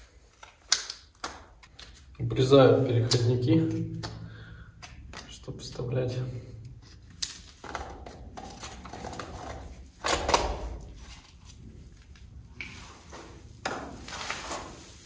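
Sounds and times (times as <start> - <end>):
plastic boxes clicking and rustling: 7.2 - 11.1.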